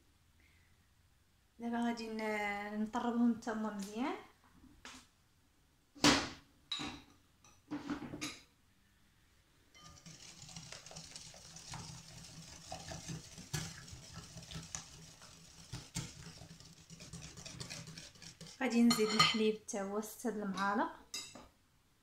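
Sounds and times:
wire whisk clattering in glass bowl: 0:09.8 - 0:19.4.

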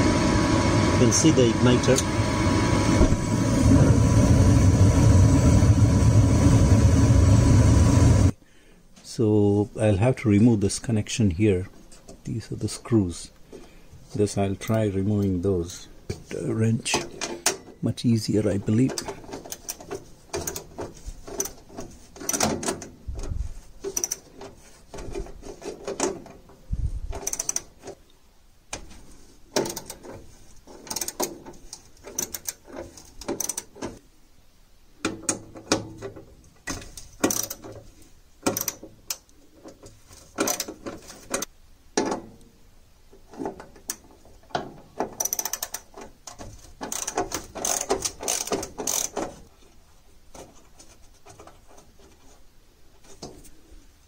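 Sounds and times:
ratchet wrench clicking: 0:23.9 - 0:24.3, 0:27.2 - 0:27.7, 0:30.9 - 0:31.3, 0:33.2 - 0:33.7, 0:37.2 - 0:37.7, 0:38.5 - 0:39.2, 0:45.2 - 0:45.9, 0:46.9 - 0:49.2.

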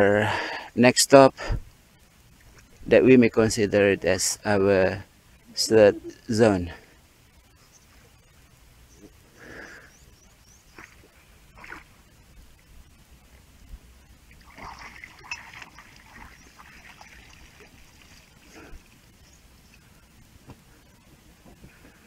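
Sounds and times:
water lapping against boat hull: 0:14.3 - 0:19.1.

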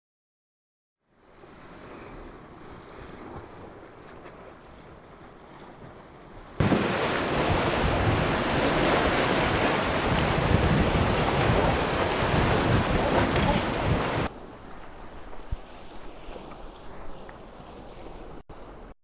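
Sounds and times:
sea surf on rocks: 0:05.7 - 0:16.5
wind buffeting microphone: 0:06.6 - 0:14.3.

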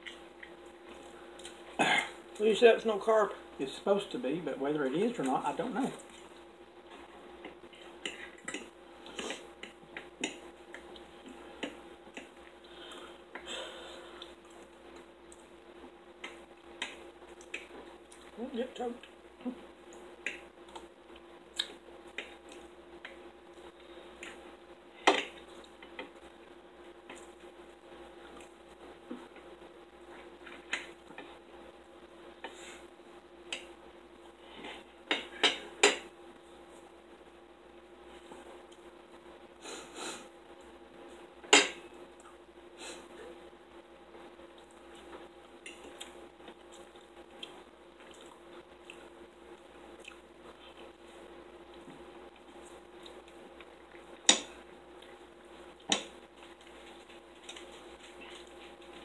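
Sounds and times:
faint steady hum: 0:00.0 - 0:59.0
chewing: 0:19.0 - 0:24.4, 0:44.5 - 0:59.0.

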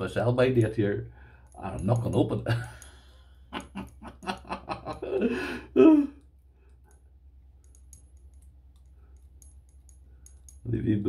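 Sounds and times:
man laughing: 0:02.5 - 0:02.8, 0:03.5 - 0:06.2.

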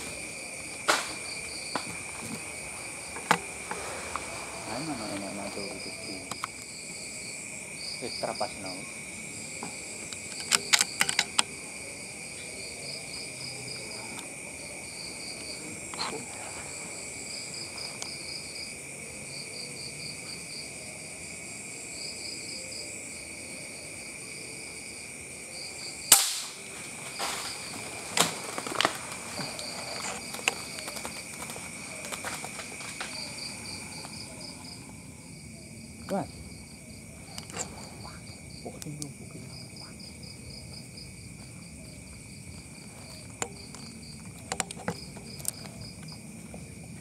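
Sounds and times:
insects chirring: 0:00.0 - 0:47.0
gunshot crack: 0:26.1 - 0:26.6.

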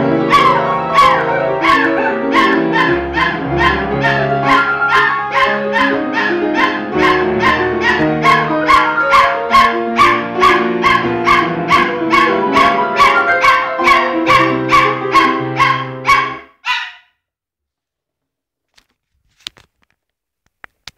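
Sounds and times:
piano music: 0:00.0 - 0:16.5
dog howling and yipping: 0:00.3 - 0:16.9.

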